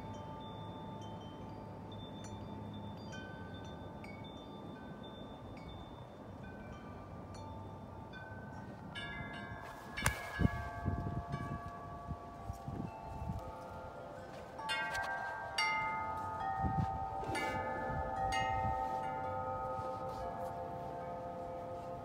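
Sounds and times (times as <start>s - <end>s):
metal wind chimes ringing: 0.0s - 22.0s.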